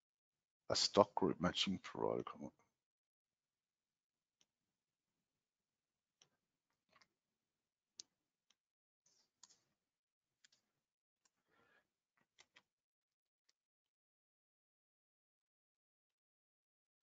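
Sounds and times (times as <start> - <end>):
computer mouse and keyboard clicks: 12.3 - 12.7.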